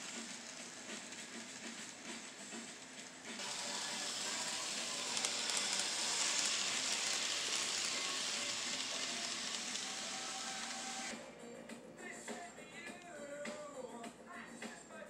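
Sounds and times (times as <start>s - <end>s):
model train wheels and motor hiss: 0.0s - 11.2s.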